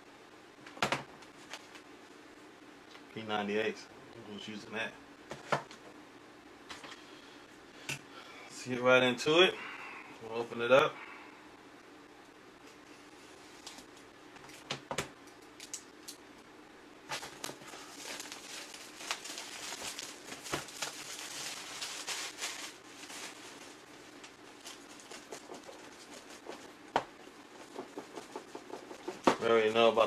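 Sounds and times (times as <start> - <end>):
plastic bag crinkling: 17.1 - 26.6.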